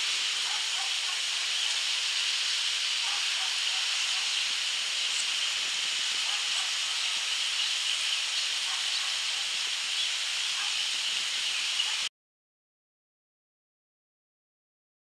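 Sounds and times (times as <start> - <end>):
steady high hiss: 0.0 - 12.1.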